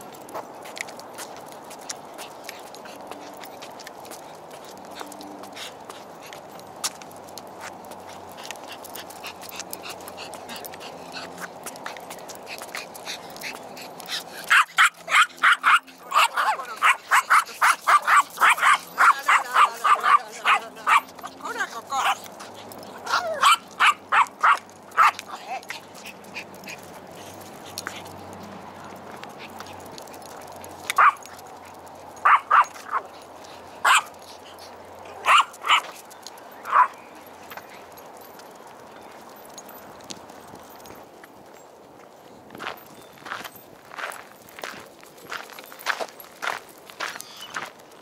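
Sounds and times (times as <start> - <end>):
small dog yapping: 14.5 - 21.0, 23.0 - 25.2, 32.2 - 33.0, 33.8 - 34.1, 35.1 - 35.8, 36.7 - 36.9.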